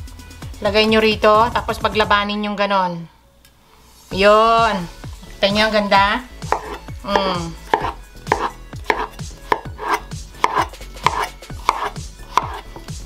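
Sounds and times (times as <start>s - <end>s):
knife slicing melon: 6.4s - 13.0s
knife knocking on cutting board: 6.5s - 12.6s.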